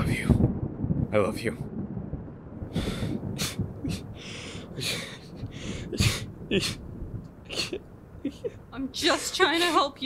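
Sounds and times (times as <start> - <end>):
person crying and sniffling: 3.4 - 6.9.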